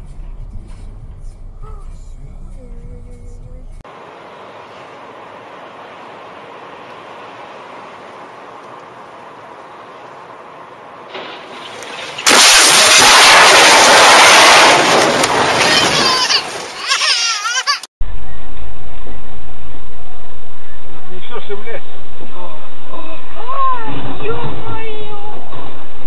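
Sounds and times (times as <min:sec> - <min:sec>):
road noise inside car: 0:00.0 - 0:12.2
car crash impact and scraping: 0:06.5 - 0:17.6.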